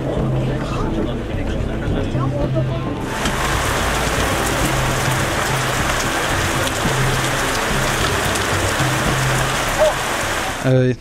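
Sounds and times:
heavy rain falling: 3.0s - 11.0s.

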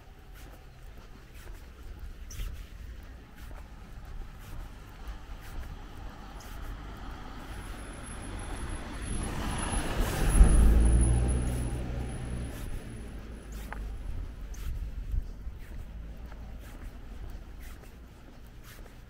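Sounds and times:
vehicle driving past: 4.5s - 14.4s.

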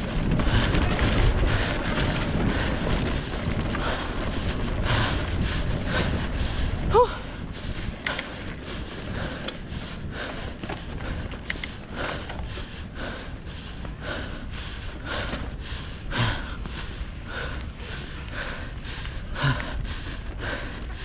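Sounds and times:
person breathing hard: 0.0s - 21.0s
wind rumble on microphone: 0.0s - 21.0s.

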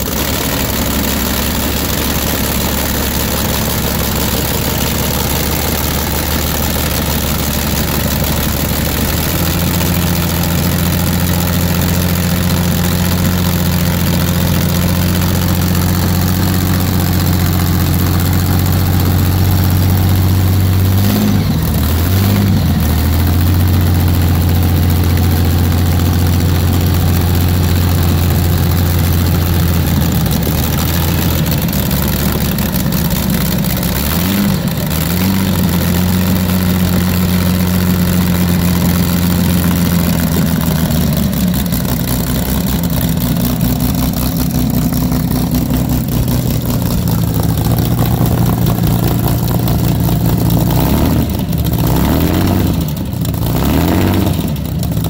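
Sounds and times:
aero engine running: 0.0s - 55.0s.

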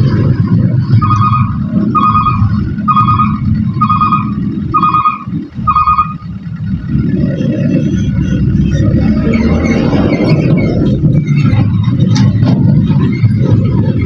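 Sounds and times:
truck engines rumbling: 0.0s - 14.0s
electronic warning beeper: 0.8s - 6.3s.

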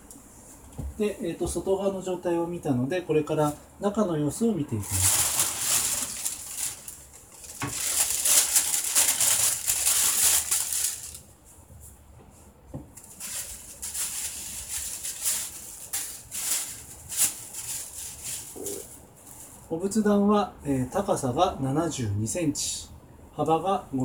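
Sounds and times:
paper rustling and crinkling: 4.8s - 11.3s, 13.0s - 19.6s.

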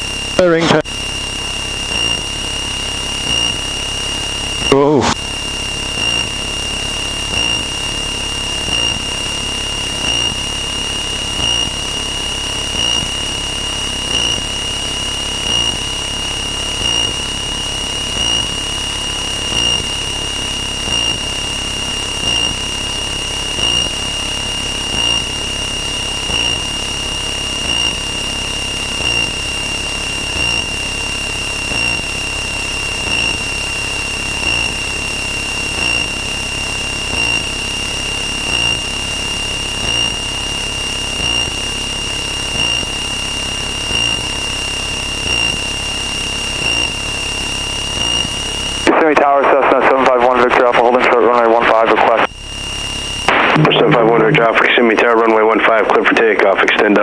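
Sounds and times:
aircraft engine drone: 0.0s - 57.0s
high-pitched tone: 38.4s - 43.2s, 46.4s - 49.0s.

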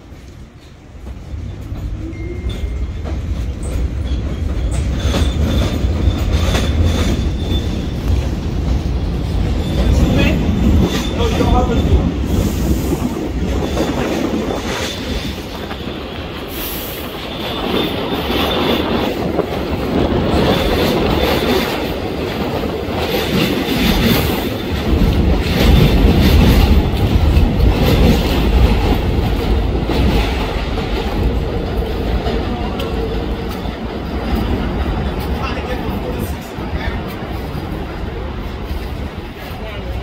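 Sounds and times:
train rumbling on elevated track: 0.0s - 40.0s
wheels clacking over rail joints: 0.2s - 40.0s
high wheel squeal: 1.5s - 8.3s, 14.9s - 19.0s.

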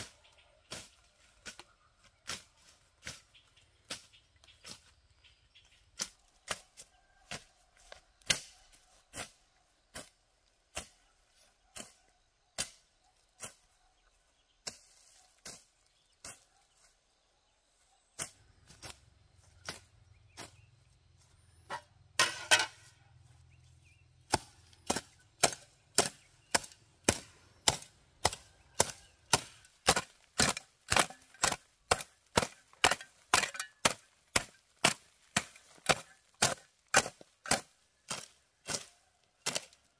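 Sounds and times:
hoe chopping into soil: 24.3s - 39.8s.

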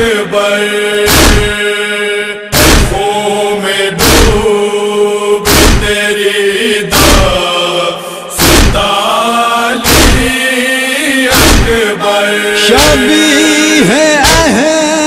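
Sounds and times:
voices chanting a lament: 0.0s - 15.0s
chest-beating thumps: 1.1s - 1.6s, 2.5s - 3.0s, 4.0s - 4.4s, 5.5s - 6.0s, 7.0s - 7.4s, 8.4s - 8.9s, 9.8s - 10.3s, 11.3s - 11.8s, 12.8s - 13.1s, 14.2s - 14.6s.

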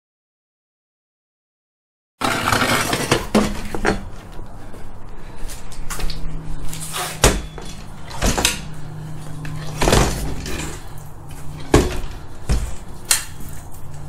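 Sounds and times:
steady low hum: 3.2s - 14.0s.

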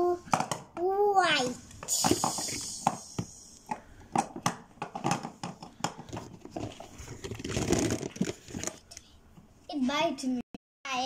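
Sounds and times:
plastic toys tapping on table: 0.3s - 0.9s, 1.8s - 6.8s.

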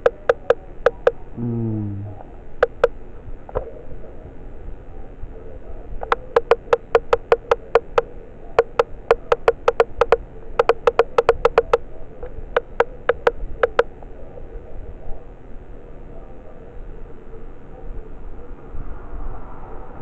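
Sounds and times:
rapid sharp hollow taps: 0.0s - 1.2s, 2.6s - 2.9s, 6.0s - 13.9s.

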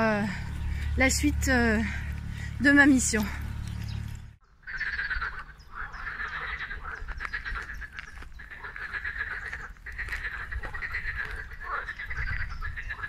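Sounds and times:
chorus of frogs croaking: 3.2s - 13.0s.

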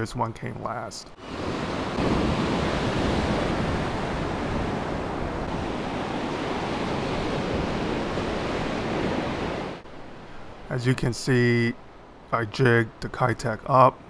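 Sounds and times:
wash rushing up sandy beach: 1.2s - 11.1s.

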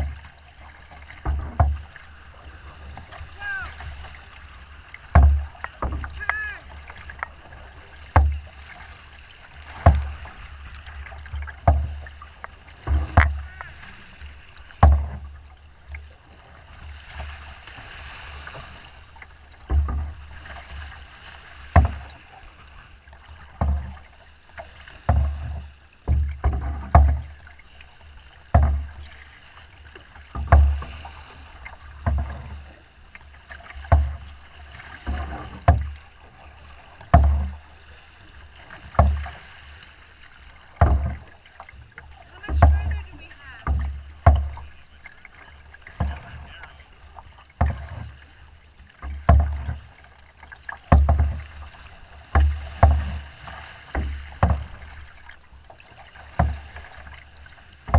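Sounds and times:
boat hull slapping waves: 0.0s - 57.9s
wash of water: 0.0s - 57.9s.

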